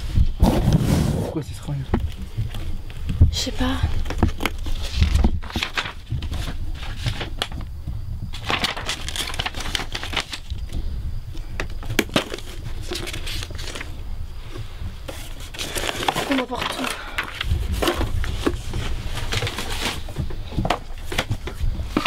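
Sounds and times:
paper and cardboard rustling: 0:03.5 - 0:07.7, 0:08.3 - 0:10.6, 0:11.6 - 0:22.0.

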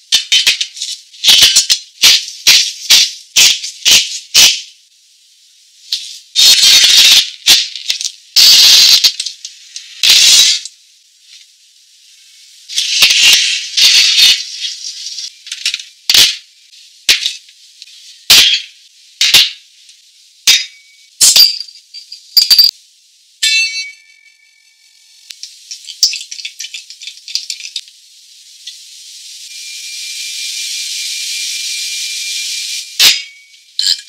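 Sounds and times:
ringing clink: 0:23.4 - 0:24.3.

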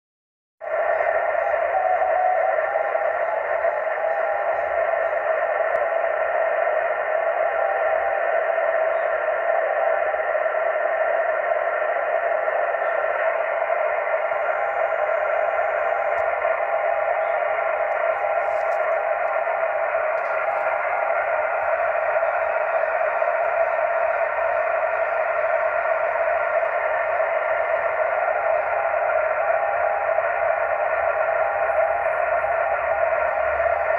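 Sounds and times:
radio band noise hiss: 0:00.6 - 0:33.9.

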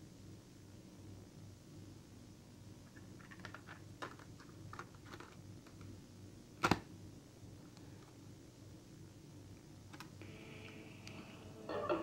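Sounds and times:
cassette tape clicking and rattling: 0:03.0 - 0:05.9.

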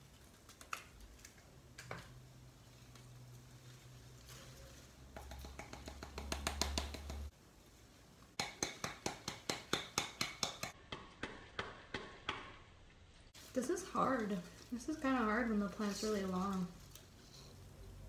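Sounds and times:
quick taps on pot and soil: 0:05.1 - 0:07.3.

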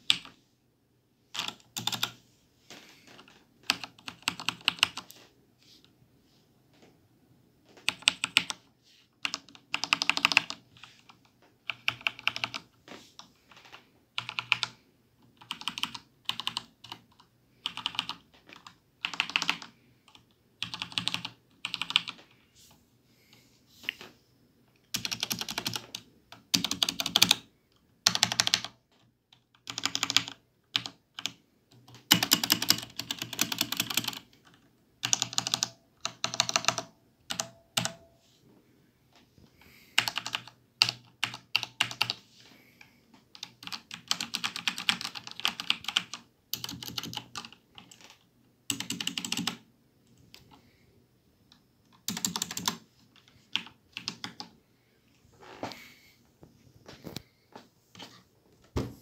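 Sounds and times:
mechanical keyboard typing: 0:00.0 - 0:00.3, 0:01.3 - 0:02.2, 0:03.1 - 0:05.2, 0:07.8 - 0:08.6, 0:09.2 - 0:12.8, 0:13.5 - 0:22.3, 0:24.9 - 0:38.1, 0:40.0 - 0:42.2, 0:43.3 - 0:50.6, 0:51.9 - 0:54.6.

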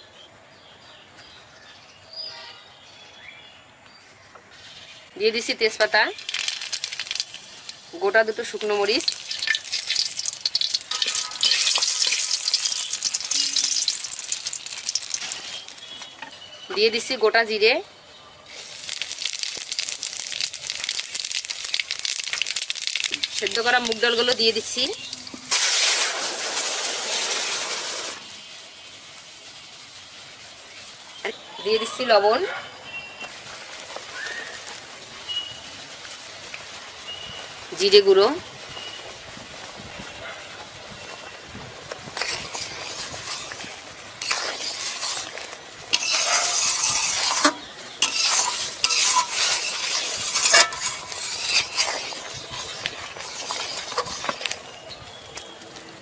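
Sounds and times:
food sizzling in hot oil: 0:04.6 - 0:17.1, 0:18.4 - 0:56.0
metal spatula scraping pan: 0:08.6 - 0:16.6, 0:42.2 - 0:54.8
steady hiss: 0:18.5 - 0:31.3.

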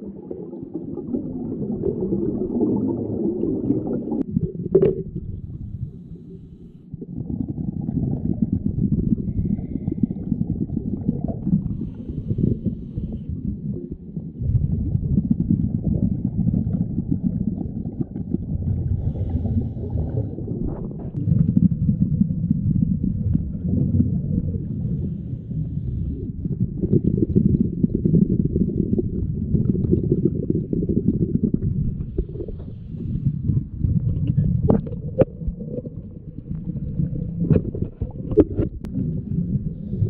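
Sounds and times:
underwater regulator breathing bubbles: 0:14.9 - 0:21.5.

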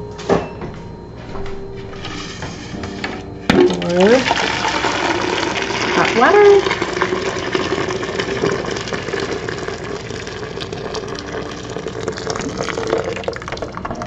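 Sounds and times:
hot water pouring into pitcher: 0:03.6 - 0:14.0.

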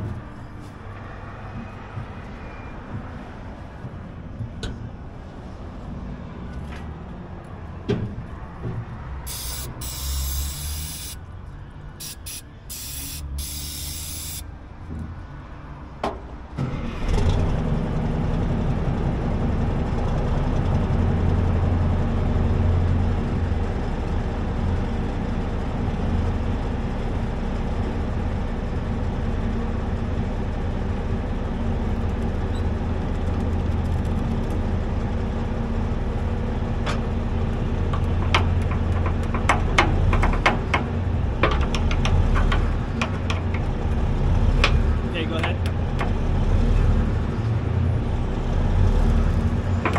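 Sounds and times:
truck engine idling: 0:00.0 - 0:15.0, 0:24.7 - 0:46.5
aerosol spray can hissing: 0:09.3 - 0:11.2, 0:12.0 - 0:14.4.

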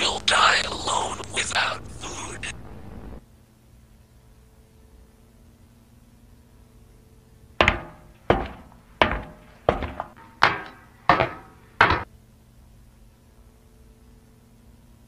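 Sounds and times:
pounding on wooden door: 0:07.6 - 0:12.1.

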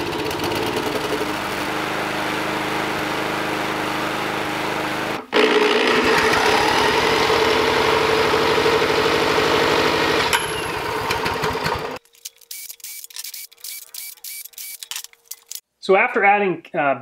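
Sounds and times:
small engine cranking: 0:05.3 - 0:08.6, 0:10.1 - 0:15.6.

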